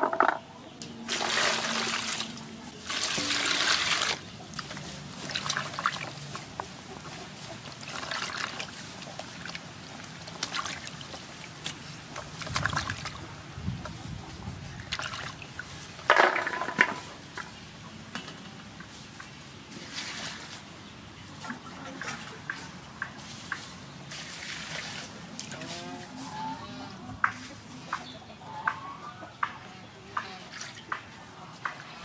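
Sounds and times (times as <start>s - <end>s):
water splashing in a metal basin: 1.1s - 6.4s, 7.8s - 13.3s, 14.8s - 16.6s
hands rubbing vegetables in water: 1.1s - 14.2s.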